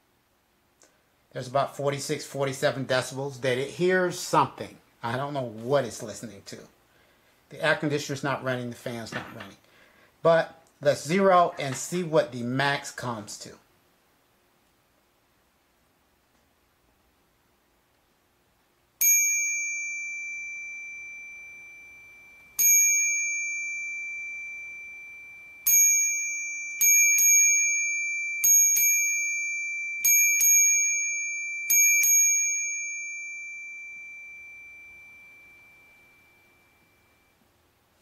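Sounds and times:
bicycle bell ringing: 19.0s - 37.4s.

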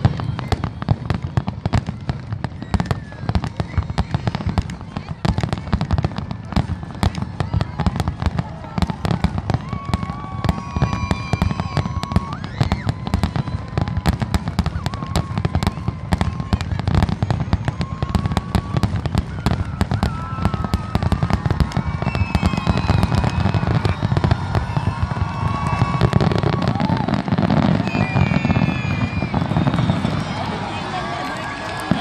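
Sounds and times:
firework whistling: 0.0s - 6.2s, 8.9s - 32.0s.

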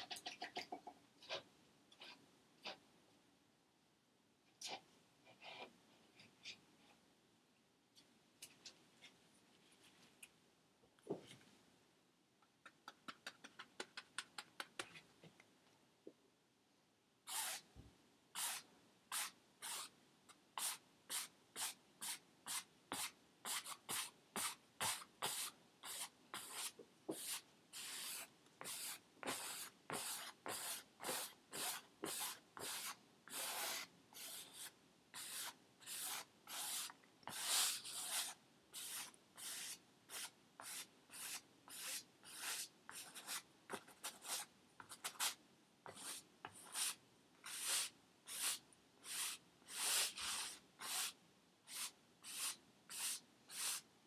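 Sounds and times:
paintbrush scrubbing canvas: 23.5s - 53.8s.

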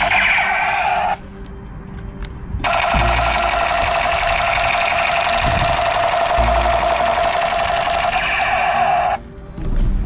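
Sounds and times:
toy gun electronic machine-gun effect: 0.0s - 1.2s, 2.6s - 9.2s.

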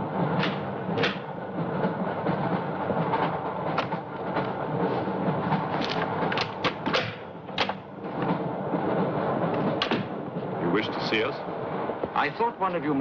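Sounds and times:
train rumble: 0.0s - 13.0s
sharp knocks and clicks: 0.3s - 4.7s, 5.3s - 8.5s, 9.4s - 10.4s.

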